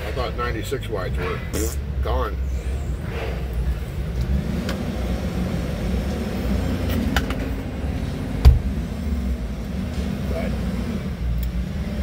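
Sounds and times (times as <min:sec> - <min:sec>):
diesel engine idling: 0:00.0 - 0:12.0
sharp thump: 0:08.4 - 0:08.7.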